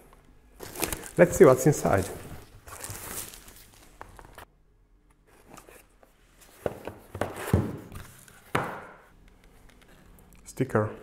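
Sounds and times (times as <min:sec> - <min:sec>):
cardboard knocks and rustles: 0:06.6 - 0:07.9.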